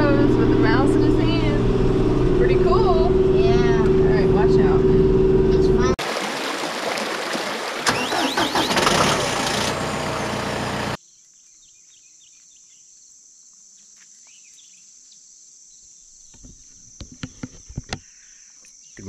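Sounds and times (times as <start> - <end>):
insects droning: 11.0 - 19.0.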